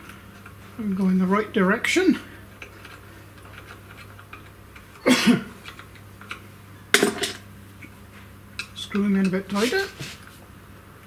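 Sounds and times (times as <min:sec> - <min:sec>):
cough-like vocal burst: 0:05.0 - 0:05.5.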